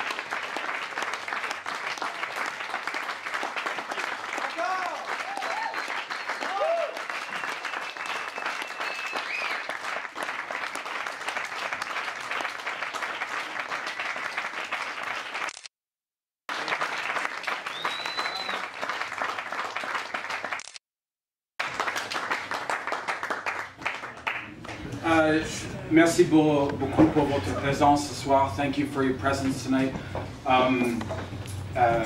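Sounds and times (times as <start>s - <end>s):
audience applauding: 0.0s - 15.6s, 16.5s - 20.8s, 21.6s - 25.1s.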